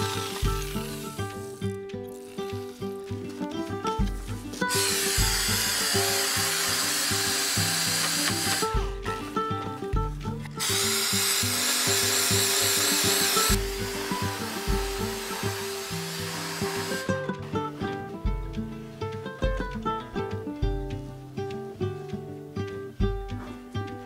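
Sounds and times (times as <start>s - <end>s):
orbital sander hissing on wood: 0.0s - 1.7s, 2.4s - 9.0s, 10.6s - 17.2s
acoustic guitar music: 0.0s - 24.0s.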